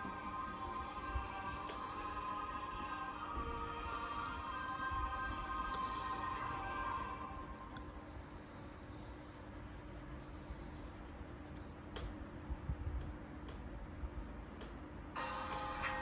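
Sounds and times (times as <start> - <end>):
pencil scratching on paper: 4.0 - 11.6.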